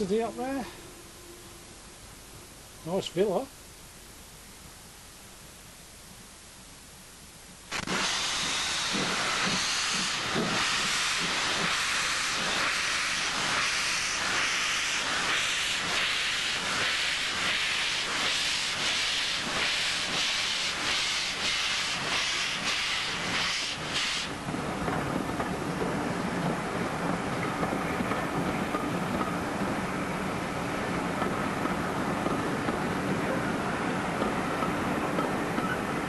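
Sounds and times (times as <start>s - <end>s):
loud steam hiss: 7.7s - 35.5s
steam locomotive chuffing: 7.8s - 36.0s.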